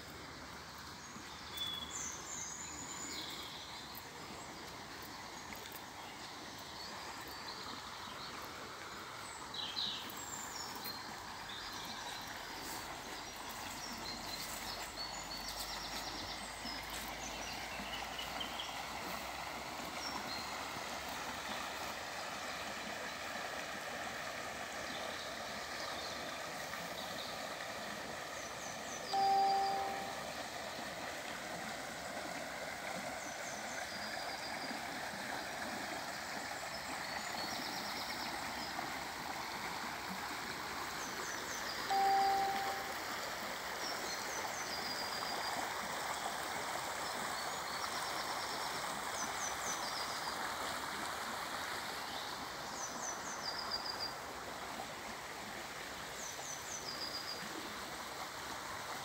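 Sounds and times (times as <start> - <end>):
river flowing over stones: 0.0 - 59.0
bird chirping: 29.1 - 30.2, 41.9 - 43.0
short steady tone: 29.1 - 30.3, 41.9 - 43.0.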